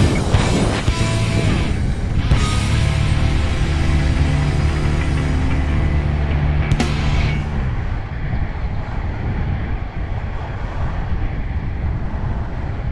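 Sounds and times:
background music: 0.0s - 7.7s
wind on microphone: 0.0s - 12.9s
skate wheels rolling on asphalt: 7.8s - 12.9s.

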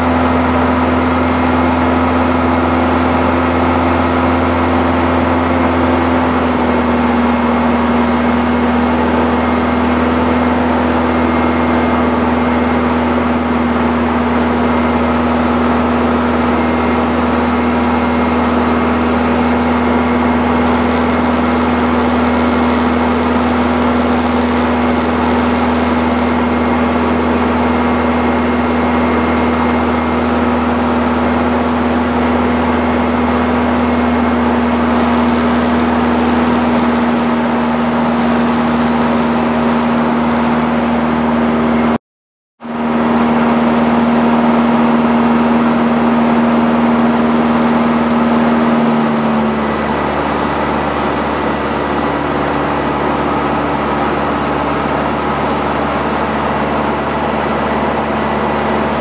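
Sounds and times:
aircraft engine and propeller drone: 0.0s - 42.0s, 42.6s - 59.0s
airflow noise: 20.3s - 26.4s, 34.6s - 40.9s.

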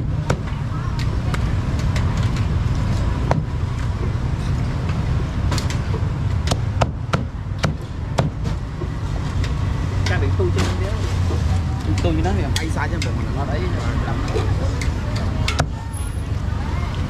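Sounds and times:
background traffic rumble: 0.0s - 17.0s
cleaver chopping on wooden block: 6.5s - 8.4s.

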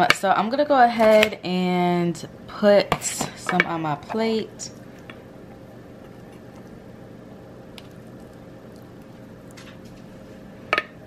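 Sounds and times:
low hum: 3.9s - 10.7s.

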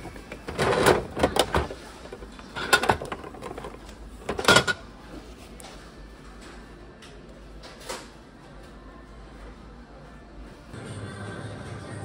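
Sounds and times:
vending machine crank clunks: 0.0s - 4.8s.

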